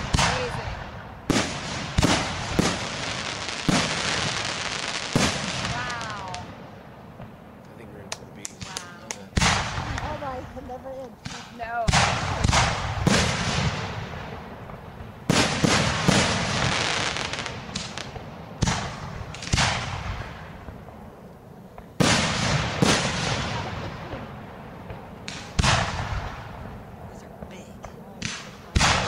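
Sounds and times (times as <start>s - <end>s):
firework shells bursting: 0.0s - 20.9s, 21.7s - 29.0s.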